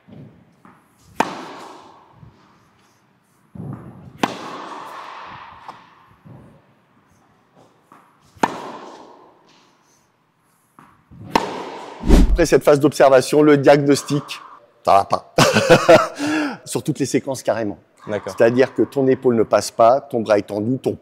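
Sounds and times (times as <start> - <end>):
tennis ball struck with racket: 1.2 - 1.7, 4.2 - 5.8, 8.4 - 9.1, 11.3 - 12.6
soft thuds: 12.0 - 12.6.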